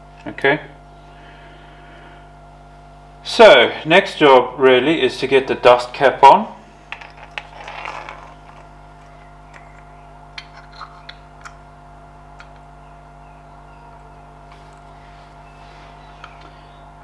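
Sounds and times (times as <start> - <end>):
steady low hum: 0.0 - 17.0
metal parts clicking: 10.4 - 11.6.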